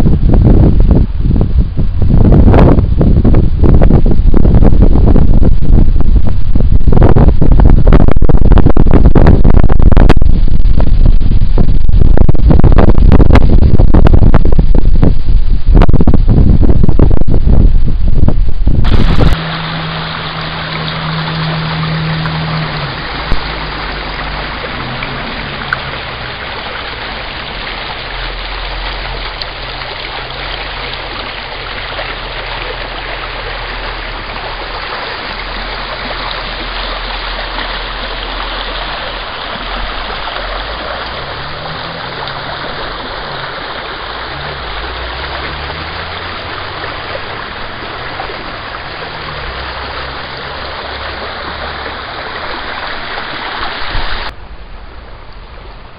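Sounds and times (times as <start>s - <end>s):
brook rushing over stones: 18.8s - 54.4s.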